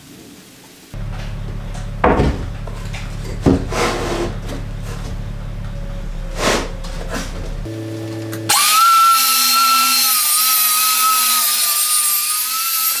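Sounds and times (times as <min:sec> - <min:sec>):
circular saw cutting a board: 0:01.8 - 0:05.2, 0:05.8 - 0:07.5, 0:08.3 - 0:13.0.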